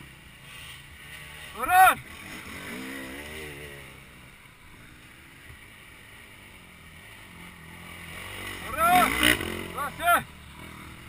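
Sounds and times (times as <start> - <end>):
dirt bike engine revving: 0.0 - 11.0
dirt bike engines running: 0.0 - 11.0.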